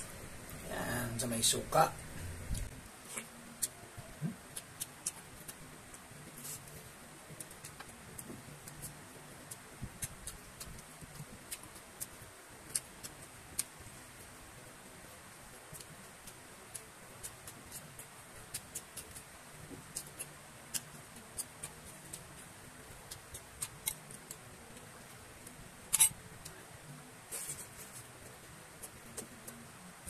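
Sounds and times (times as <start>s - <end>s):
chewing and wet mouth clicks: 2.5s - 3.8s, 4.5s - 5.6s.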